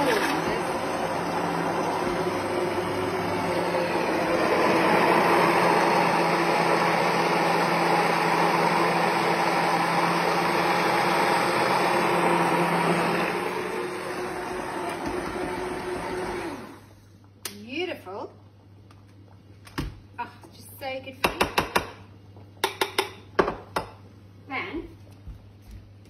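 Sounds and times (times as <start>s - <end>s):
stick blender running: 0.0s - 17.1s.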